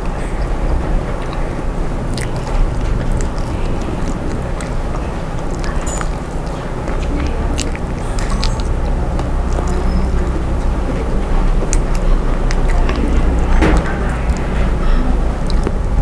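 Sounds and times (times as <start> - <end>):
chewing and eating: 0.0 - 16.0
low rumble: 0.0 - 16.0.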